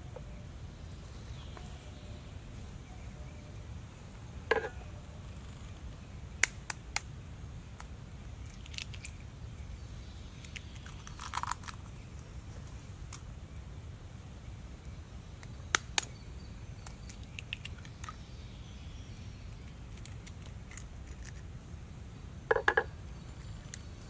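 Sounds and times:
eggshell crackle: 0:07.8 - 0:09.2, 0:10.4 - 0:12.2, 0:16.8 - 0:18.2, 0:19.6 - 0:21.5.

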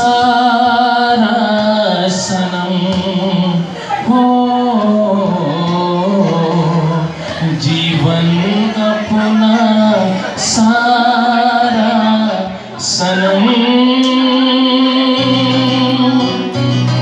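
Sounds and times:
person singing long notes: 0:00.0 - 0:17.0
instrumental accompaniment: 0:13.4 - 0:17.0.

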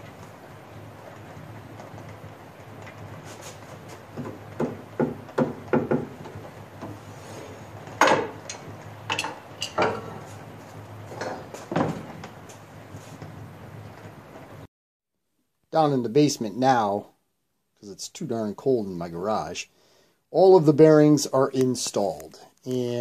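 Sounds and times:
metal clanks and knocks: 0:04.1 - 0:07.0, 0:07.9 - 0:10.4, 0:11.1 - 0:12.4.

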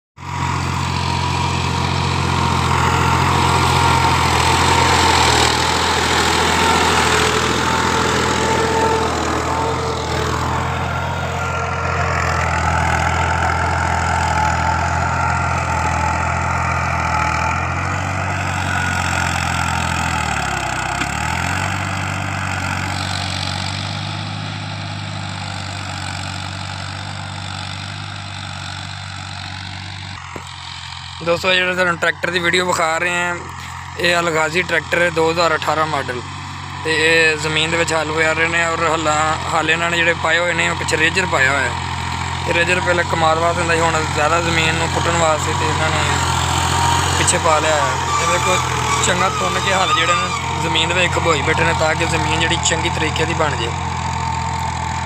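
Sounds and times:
tractor diesel engine running: 0:00.2 - 0:55.0.

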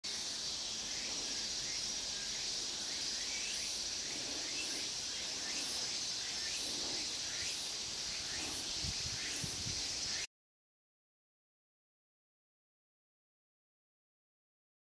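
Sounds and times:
insects trilling: 0:00.0 - 0:10.3.

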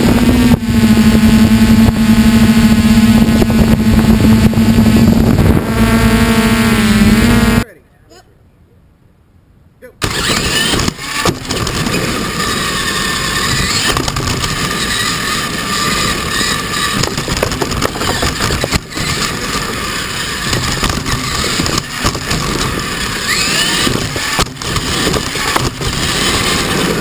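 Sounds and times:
motor and gears whining: 0:00.0 - 0:07.6, 0:10.0 - 0:27.0
chassis rattling: 0:10.0 - 0:27.0
tyres rumbling on gravel: 0:10.0 - 0:27.0.

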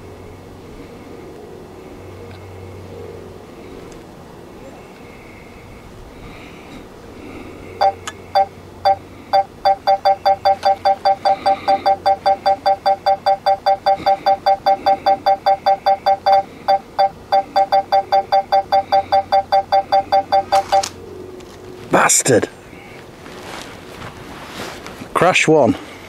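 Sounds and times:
two-tone electronic warning beeps: 0:07.8 - 0:20.9.

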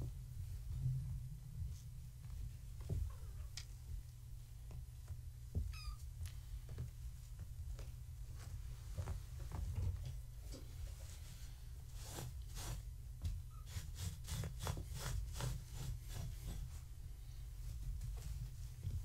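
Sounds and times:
low hum: 0:00.0 - 0:04.5.

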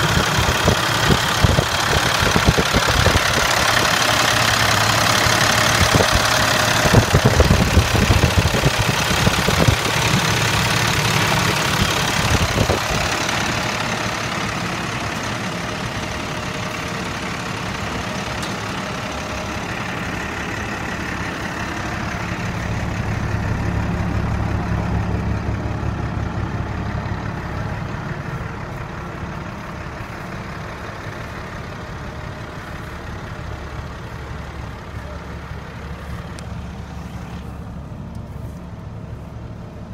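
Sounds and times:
uneven engine knocks: 0:00.0 - 0:13.8
diesel engine idling: 0:00.0 - 0:39.9.

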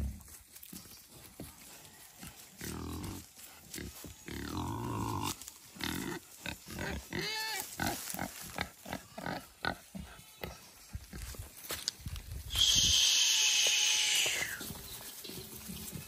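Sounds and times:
pigs grunting: 0:02.6 - 0:10.2
animals calling: 0:12.5 - 0:15.0.

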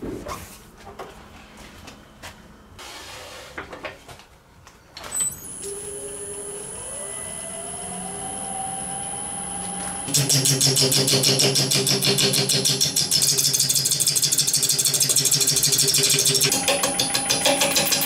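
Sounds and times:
lathe motor spinning up: 0:05.4 - 0:10.1.

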